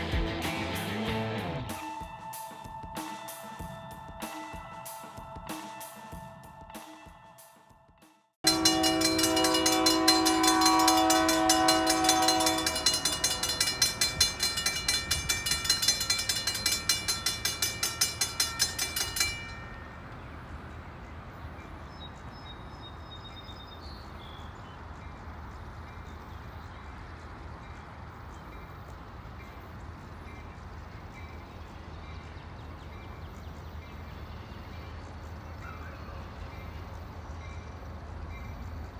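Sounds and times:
crossing bell ringing rapidly: 1.8 - 7.8, 8.4 - 20.7
locomotive horn chord: 8.4 - 14.6.

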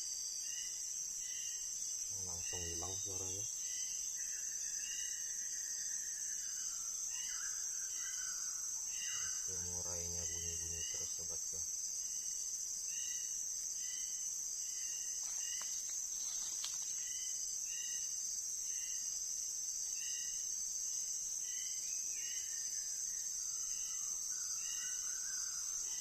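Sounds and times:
high-pitched insect drone: 0.0 - 19.2.

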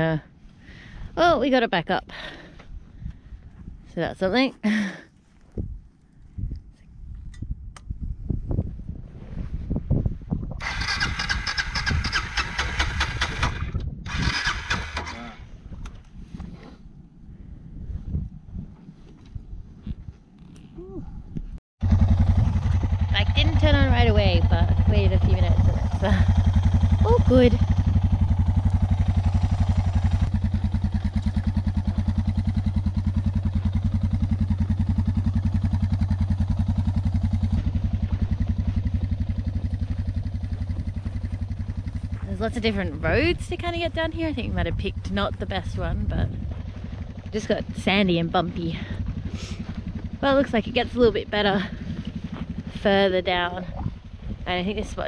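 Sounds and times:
motorcycle engine running: 10.4 - 15.4, 21.8 - 55.0
motorcycle starter cranking: 10.6 - 15.3.

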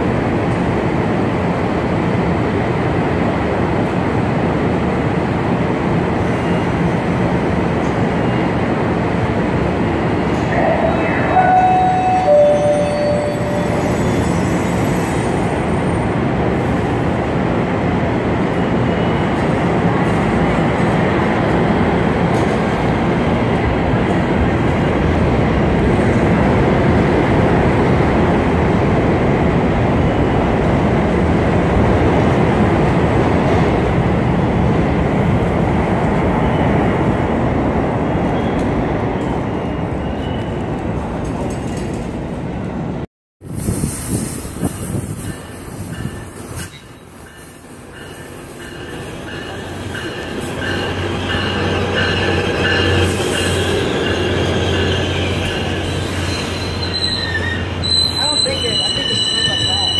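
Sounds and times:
train wheels rumbling on rail: 0.0 - 59.9
short high tone: 10.8 - 14.4.

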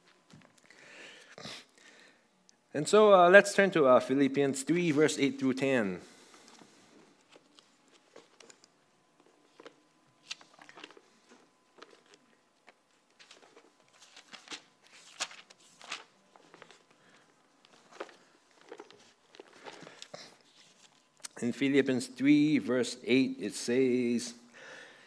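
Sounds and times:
pages being turned: 7.2 - 21.1.

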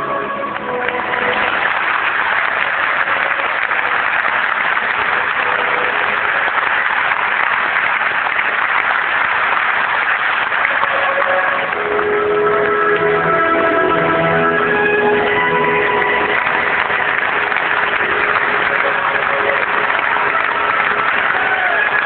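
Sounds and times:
orchestral music: 0.0 - 7.5, 9.5 - 22.0
audience applauding: 0.0 - 22.0.

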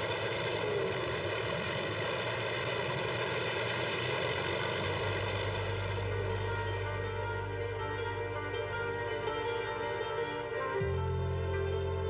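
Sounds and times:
piston aircraft engines droning: 0.0 - 12.0.

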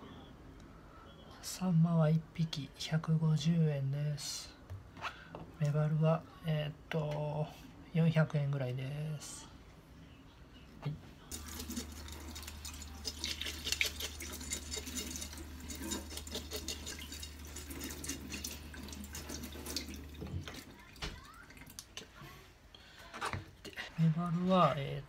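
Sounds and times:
fish scaler scraping scales: 11.6 - 19.9.

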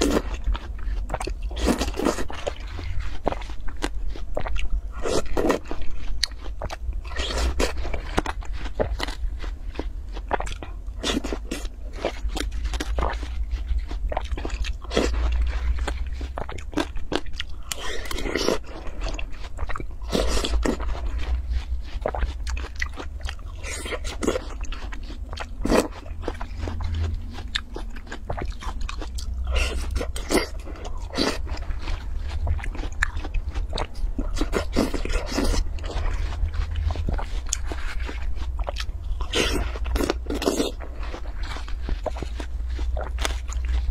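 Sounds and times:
watermelon crunching: 0.0 - 43.9.

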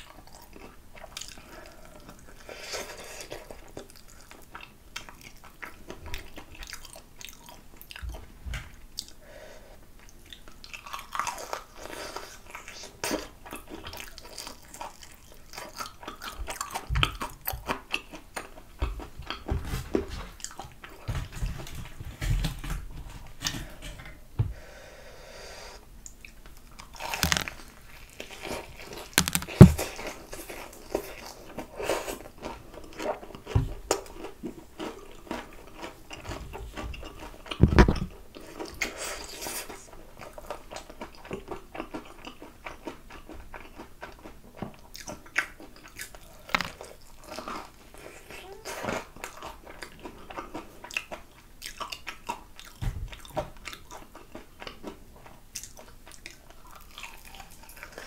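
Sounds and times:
crunching fried chicken: 10.3 - 19.5, 26.6 - 58.0
mouth sounds: 48.2 - 49.0.

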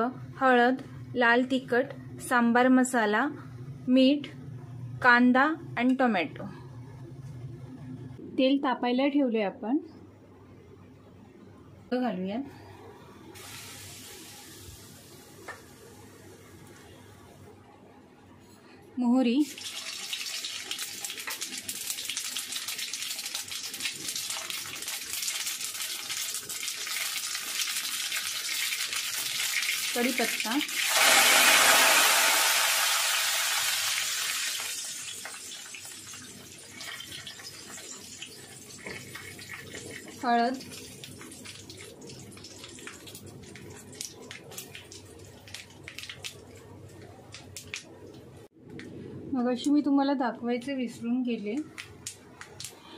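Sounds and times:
seeds sizzling and popping in oil: 19.4 - 46.6.

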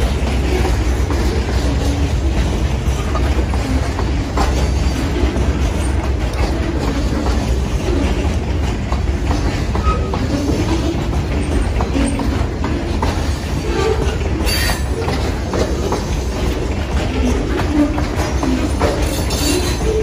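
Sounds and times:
clicking over rail joints: 0.0 - 20.0
train wheels rumbling on rail: 0.0 - 20.0
wheel squeal: 9.7 - 12.5, 13.1 - 20.0.

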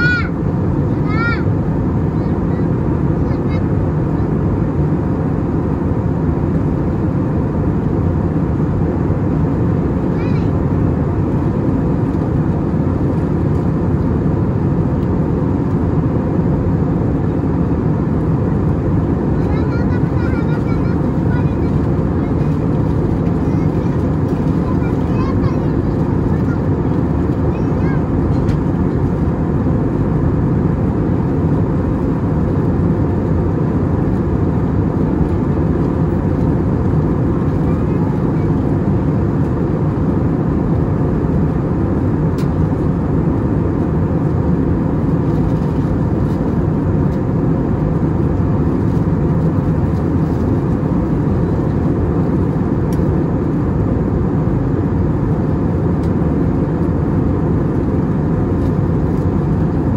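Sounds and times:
airplane cabin engine drone: 0.0 - 59.9.

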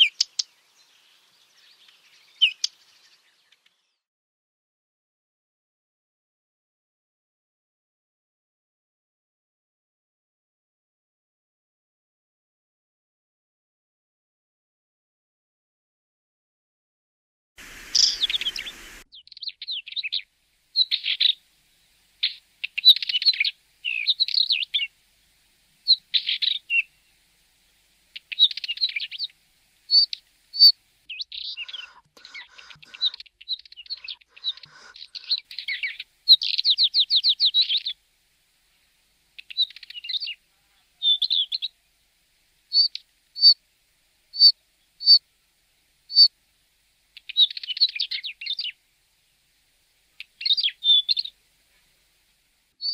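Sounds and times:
bird singing scratchy warbles: 0.0 - 4.0, 17.6 - 25.0, 25.8 - 27.2, 28.1 - 38.0, 38.7 - 42.0, 42.7 - 43.6, 44.3 - 45.2, 46.1 - 46.3, 47.1 - 48.8, 50.2 - 51.9
brief single bird notes: 17.6 - 19.1.

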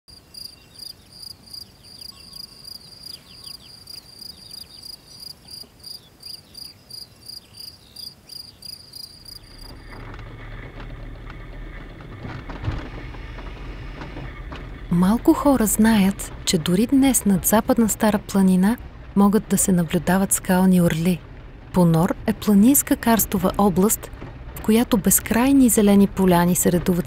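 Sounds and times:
cricket chirping: 0.1 - 9.8
car driving rumble: 9.2 - 27.0.

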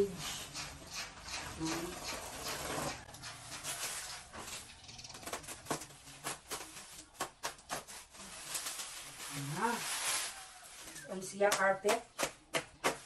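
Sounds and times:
plastic wrapping crinkling: 3.3 - 11.6.

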